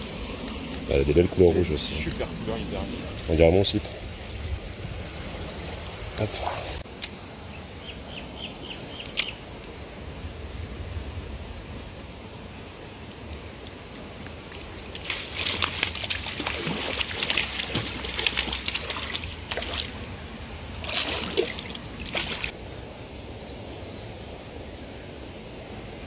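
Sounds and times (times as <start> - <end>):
fish splashing in water: 14.8 - 20.1, 20.8 - 22.6.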